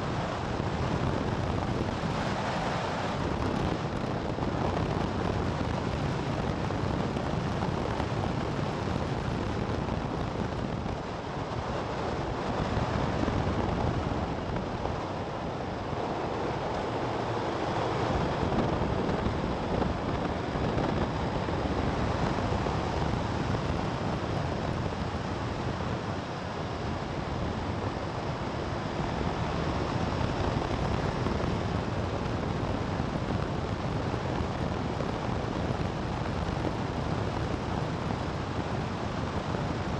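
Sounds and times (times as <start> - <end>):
vehicle road and engine noise: 0.0 - 39.9
wind rush on microphone: 0.0 - 39.9.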